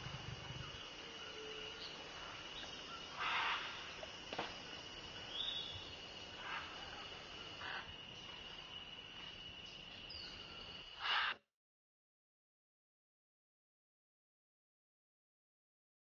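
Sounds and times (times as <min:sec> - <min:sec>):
high insect drone: 0:00.0 - 0:11.4
macaw squawk: 0:03.2 - 0:03.7, 0:11.0 - 0:11.4
faint short bird calls: 0:03.2 - 0:03.8, 0:11.0 - 0:11.4.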